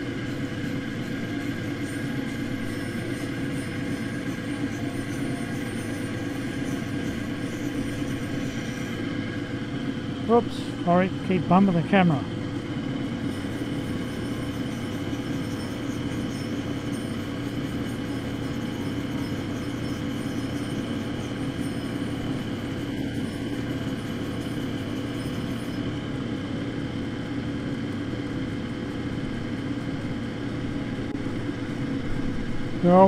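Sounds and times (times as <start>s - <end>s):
grinding wheel motor hum: 0.0s - 33.0s.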